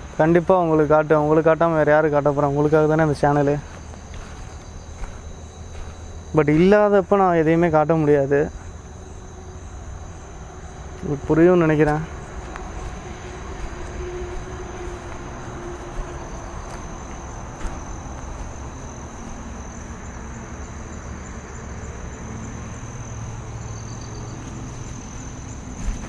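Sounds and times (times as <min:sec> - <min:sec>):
crickets trilling: 0:00.0 - 0:26.0
low rustling: 0:02.5 - 0:06.6.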